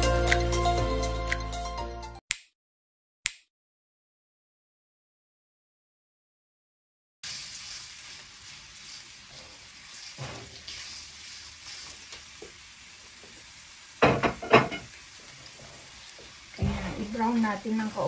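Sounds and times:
garlic sizzling in oil: 0:07.2 - 0:18.0
spatula stirring in wok: 0:07.3 - 0:12.8.

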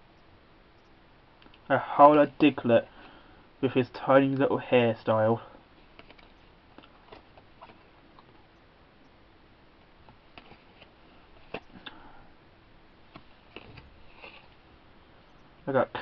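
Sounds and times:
trading cards clicking and rustling: 0:05.8 - 0:08.4, 0:10.3 - 0:12.0, 0:13.1 - 0:14.5.

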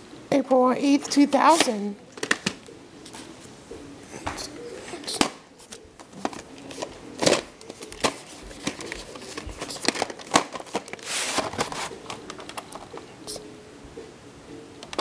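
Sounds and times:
plastic rustle: 0:06.2 - 0:12.9.

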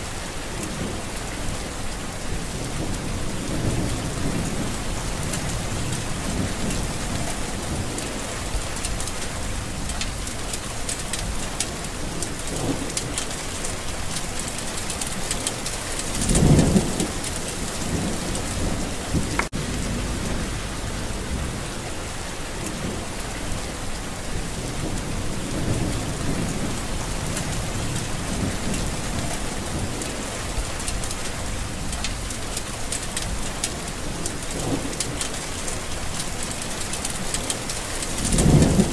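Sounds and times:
heavy rain: 0:00.0 - 0:38.9
wind: 0:00.0 - 0:38.9
low rumble: 0:18.0 - 0:22.7.

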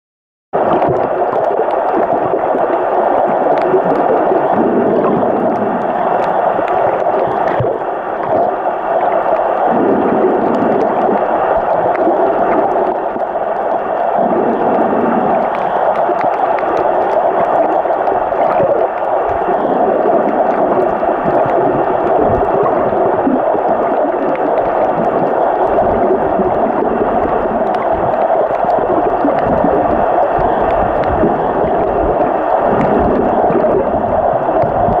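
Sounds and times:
underwater noise: 0:00.6 - 0:35.0
faint clicks: 0:10.4 - 0:21.6.

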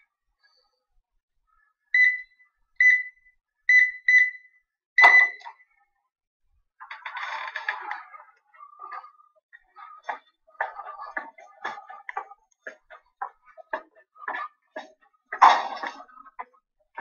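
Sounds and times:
keypad beeping: 0:02.0 - 0:05.5.

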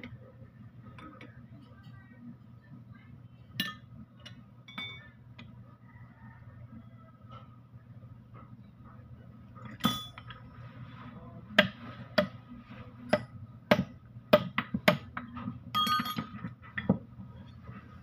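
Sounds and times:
metal tools clinking on metal: 0:04.7 - 0:05.2, 0:15.8 - 0:16.5.

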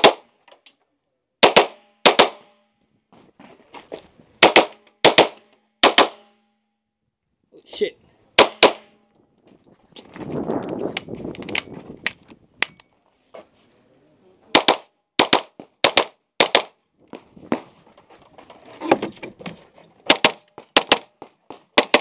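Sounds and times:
gunshots: 0:00.0 - 0:00.3, 0:01.4 - 0:02.6, 0:04.4 - 0:06.4, 0:08.4 - 0:09.0, 0:14.5 - 0:16.8, 0:20.1 - 0:22.0
rustling noise: 0:09.2 - 0:12.4, 0:13.0 - 0:13.9, 0:17.0 - 0:20.1.

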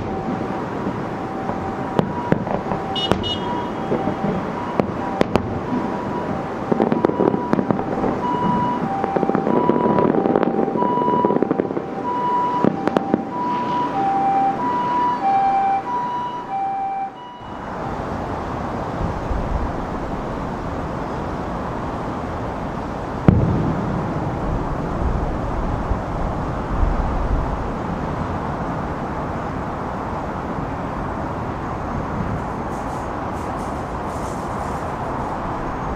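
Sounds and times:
distant firework bangs: 0:00.0 - 0:15.0, 0:23.2 - 0:25.4
outdoor rumble and hiss: 0:00.0 - 0:16.2, 0:17.4 - 0:35.9
two-tone emergency siren: 0:00.0 - 0:18.4.

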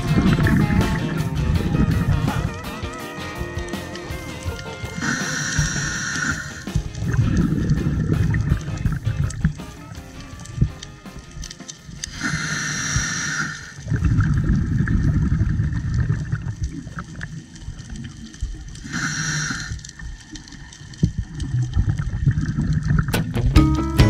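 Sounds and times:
regulator inhalation hiss: 0:02.3 - 0:07.2, 0:12.0 - 0:13.8, 0:18.8 - 0:20.0
gurgling exhaled bubbles: 0:04.2 - 0:09.7, 0:12.0 - 0:23.2.

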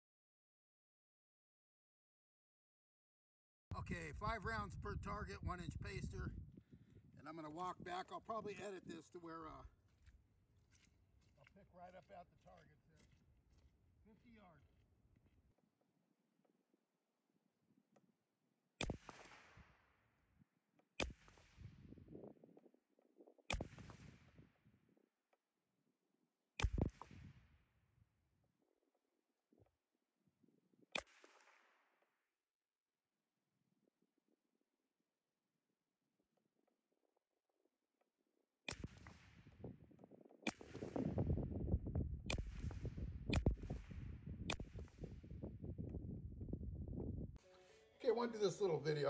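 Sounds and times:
wind rumble on microphone: 0:03.7 - 0:08.1, 0:21.5 - 0:25.0, 0:38.8 - 0:47.4
rifle shots with echo: 0:18.8 - 0:19.8, 0:23.5 - 0:24.4, 0:40.5 - 0:41.4, 0:42.3 - 0:45.4.

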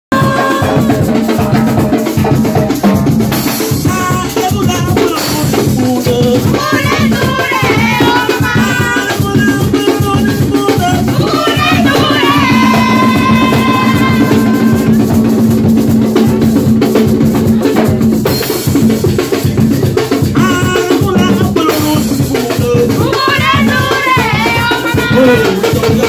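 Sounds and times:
hand drums in fast rhythm: 0:00.1 - 0:26.0
voices singing: 0:00.2 - 0:01.7, 0:03.8 - 0:15.1, 0:20.4 - 0:26.0.

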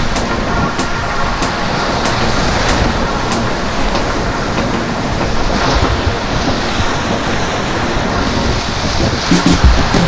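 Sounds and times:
whitewater rapids rushing: 0:00.0 - 0:10.0.

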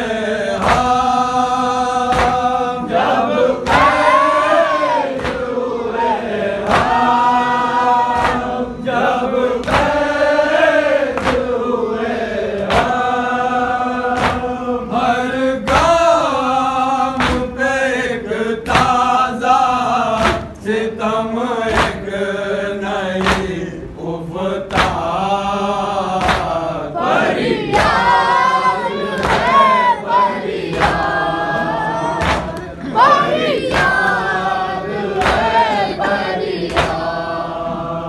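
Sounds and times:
men chanting in unison: 0:00.0 - 0:38.0
chest-beating slaps: 0:00.5 - 0:01.2, 0:02.0 - 0:04.2, 0:05.0 - 0:05.6, 0:06.6 - 0:07.3, 0:08.1 - 0:10.1, 0:11.1 - 0:11.6, 0:12.5 - 0:13.1, 0:14.1 - 0:14.6, 0:15.6 - 0:16.1, 0:17.1 - 0:17.6, 0:18.6 - 0:19.2, 0:20.1 - 0:20.6, 0:21.6 - 0:22.2, 0:23.2 - 0:23.7, 0:24.7 - 0:25.2, 0:26.1 - 0:28.4, 0:29.0 - 0:34.3, 0:35.0 - 0:37.8.

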